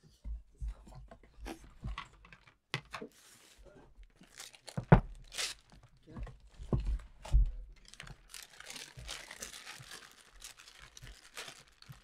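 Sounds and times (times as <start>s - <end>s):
crinkling rustle: 2.3s - 7.1s, 7.8s - 12.0s.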